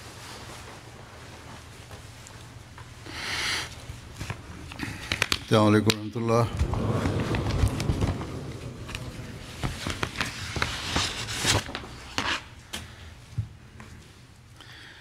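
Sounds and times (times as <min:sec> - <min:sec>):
crowd rustling and shuffling: 0:06.5 - 0:12.3.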